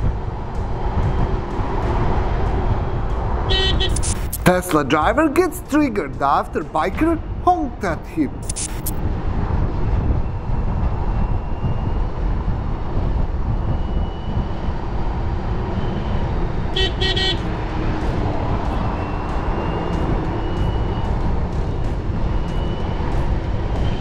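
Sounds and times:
motorcycle horn beeping: 3.5s - 4.2s, 16.8s - 17.4s
wind and motorcycle road rumble: 9.0s - 24.0s.

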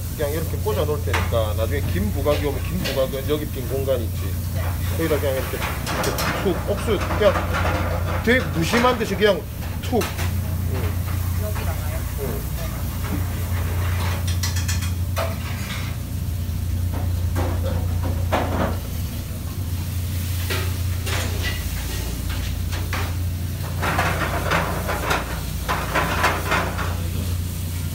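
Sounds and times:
kitchen low hum: 0.0s - 27.9s
plates and utensils clinking: 1.0s - 16.0s, 20.4s - 27.4s.

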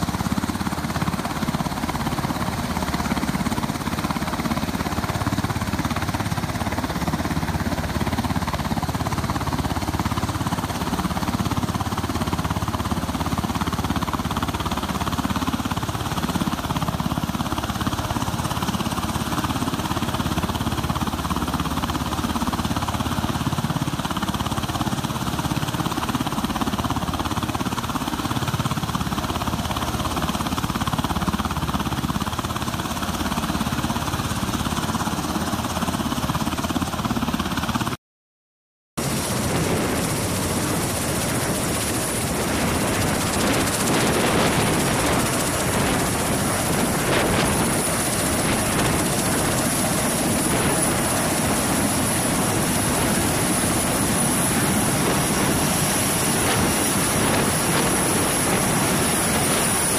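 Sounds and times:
aircraft rotor noise: 0.0s - 38.0s, 39.0s - 59.9s
high turbine whine: 39.0s - 59.9s.

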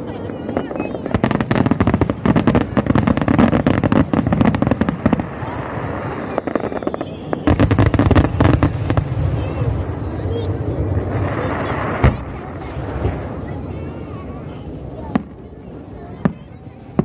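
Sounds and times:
fireworks cracks and bangs: 0.0s - 17.0s.

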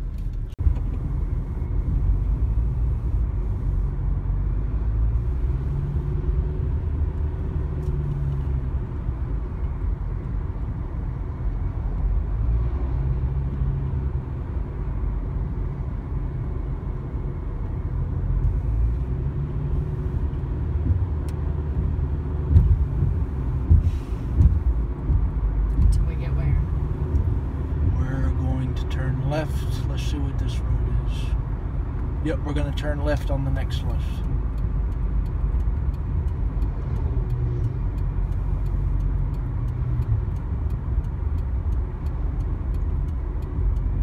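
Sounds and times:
car cabin road rumble: 0.0s - 44.0s
thumps in car: 21.8s - 26.0s.

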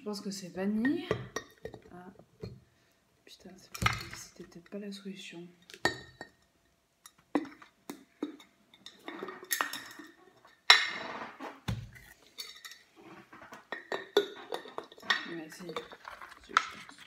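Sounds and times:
glass jar clinking: 5.6s - 6.5s, 7.1s - 11.1s, 11.9s - 12.9s, 13.6s - 17.0s.

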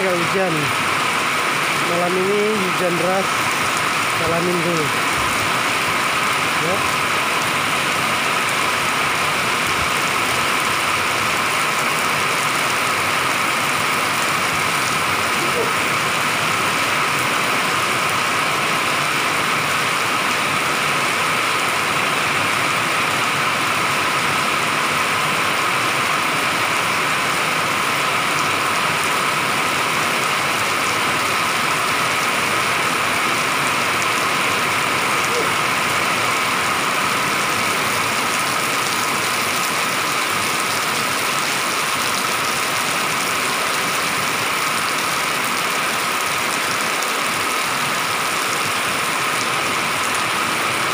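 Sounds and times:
heavy rain on pavement: 0.0s - 50.9s.

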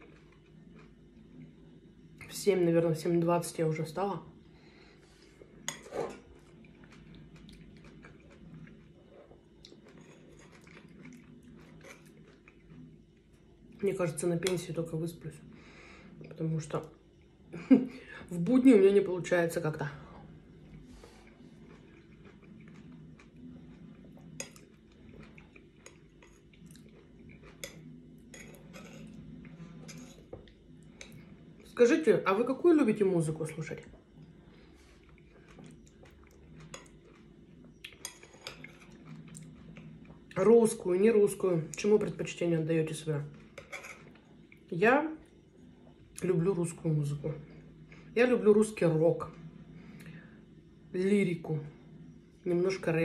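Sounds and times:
wet chewing: 5.7s - 13.8s, 20.6s - 31.7s, 33.9s - 40.4s
metal spoon scooping in ceramic bowl: 43.6s - 44.2s.

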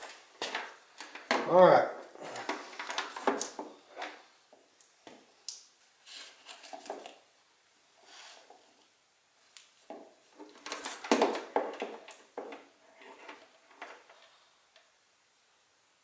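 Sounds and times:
plastic knocks and rattles: 9.9s - 14.2s.

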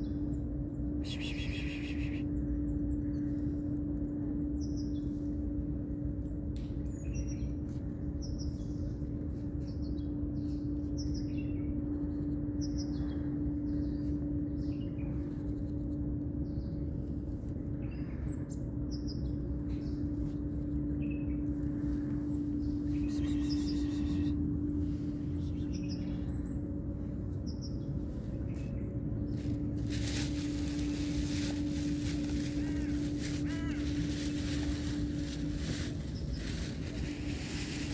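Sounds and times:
small birds chirping: 0.0s - 5.2s, 17.7s - 26.7s, 27.4s - 37.9s
low hum and rumble: 0.0s - 37.9s.

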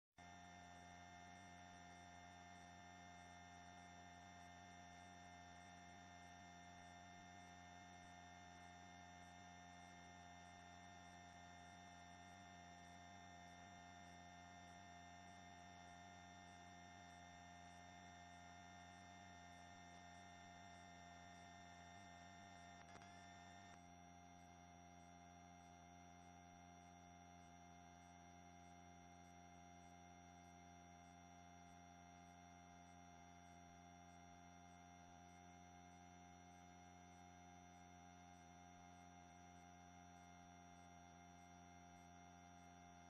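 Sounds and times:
faint electronic hum: 0.2s - 43.0s.

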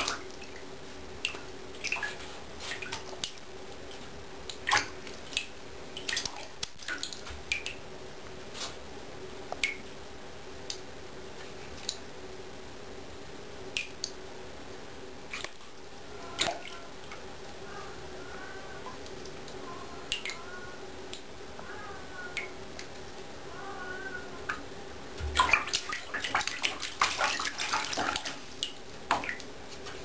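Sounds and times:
faint steady hum: 0.0s - 30.0s
cat splashing in bathwater: 25.2s - 29.5s.

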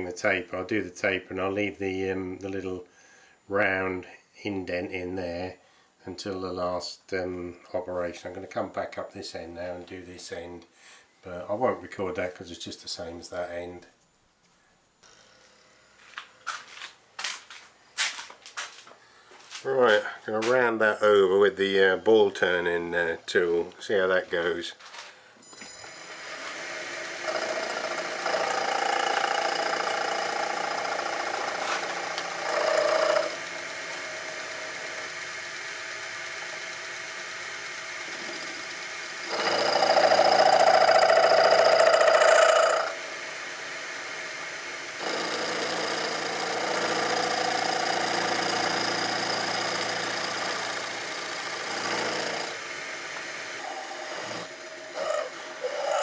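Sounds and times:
metal lathe humming: 25.8s - 56.0s
lathe tool cutting metal: 25.9s - 56.0s.

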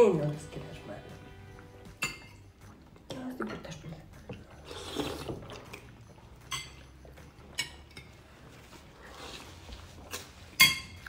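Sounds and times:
spoons clinking on plates: 1.6s - 2.6s, 4.3s - 8.6s, 10.4s - 11.0s.

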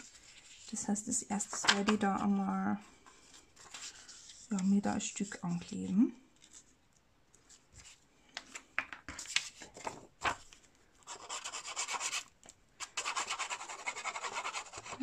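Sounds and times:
paper handling clicks and rubs: 1.4s - 2.0s
glue pen scribbling on paper: 11.1s - 12.2s, 13.0s - 15.0s.

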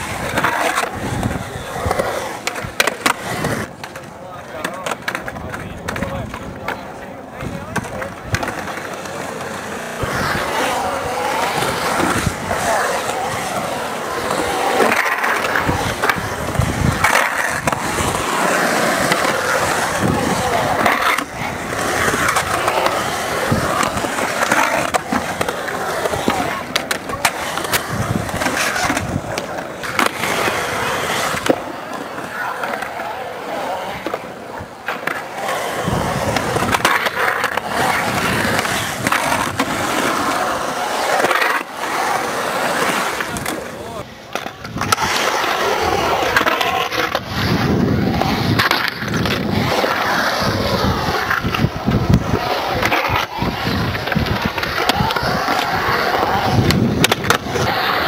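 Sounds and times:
skateboard clacks: 0.0s - 58.0s
skateboard truck grinding: 0.0s - 58.0s
skateboard wheels rolling on concrete: 0.0s - 58.0s.

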